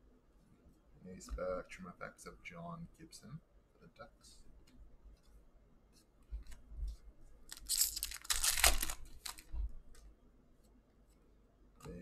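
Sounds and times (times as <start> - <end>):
wrapper tearing and crumpling: 7.5 - 9.5.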